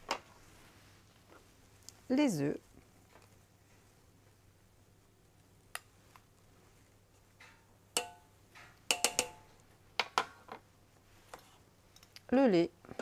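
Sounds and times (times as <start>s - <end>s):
glass bowl clinking on steel bowl: 8.0s - 8.3s, 8.9s - 9.5s.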